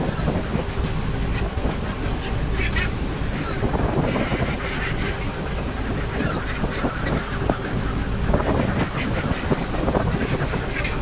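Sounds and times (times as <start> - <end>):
boat engine rumble: 0.0 - 11.0
gulls calling: 0.0 - 11.0
wind on microphone: 0.0 - 11.0.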